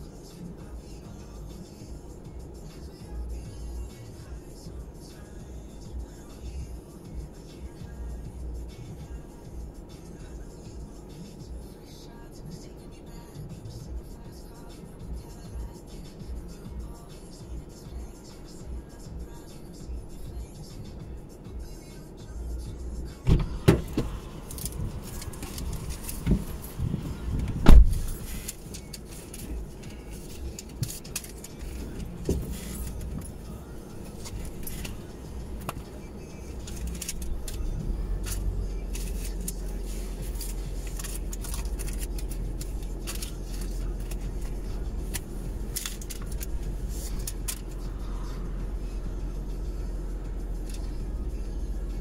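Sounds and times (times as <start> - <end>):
low rumble: 22.3 - 52.0.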